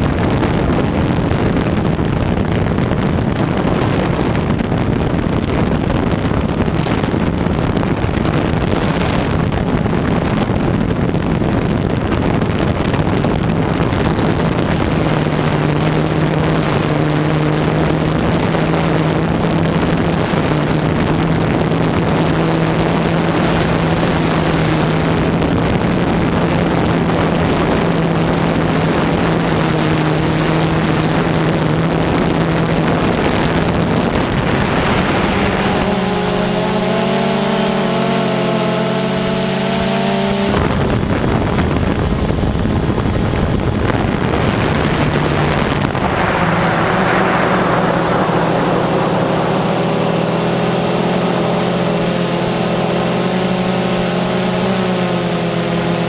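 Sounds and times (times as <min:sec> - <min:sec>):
drone propellers buzzing: 0:00.0 - 0:26.2, 0:30.8 - 0:56.0
steady pitched hum: 0:31.4 - 0:38.9, 0:41.2 - 0:55.5.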